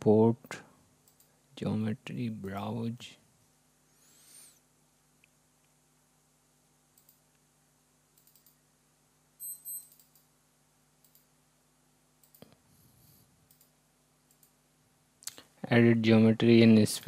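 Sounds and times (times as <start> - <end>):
computer mouse clicks: 1.0 - 1.3, 7.0 - 7.4, 8.2 - 8.6, 9.7 - 10.3, 11.0 - 11.3, 12.2 - 12.6, 13.4 - 14.6.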